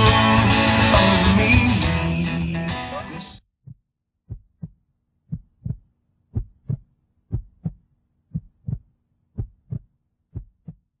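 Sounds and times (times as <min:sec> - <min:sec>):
heartbeat thumps: 0:03.6 - 0:10.9.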